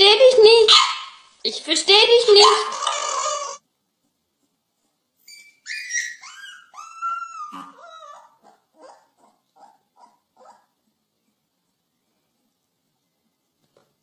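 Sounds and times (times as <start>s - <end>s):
puppies whining: 5.2s - 10.8s.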